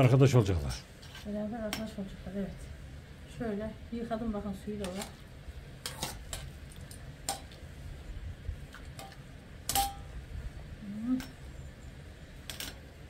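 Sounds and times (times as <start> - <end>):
utensils and pot clinking: 9.0 - 10.1, 12.4 - 12.8.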